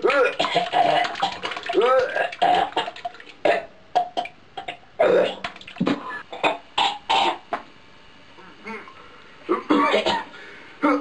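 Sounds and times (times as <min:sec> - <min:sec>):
person making throat noises: 0:00.0 - 0:05.6, 0:08.4 - 0:11.0.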